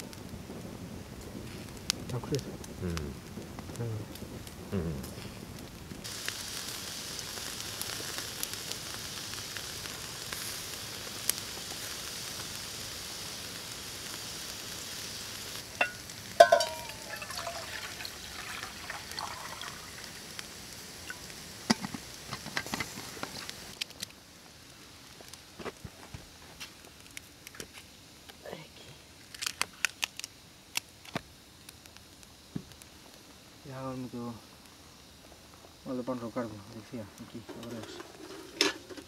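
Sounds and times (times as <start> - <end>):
steaks sizzling with crackles: 0.0 - 39.0
liquid pouring into steel mug: 15.9 - 20.0.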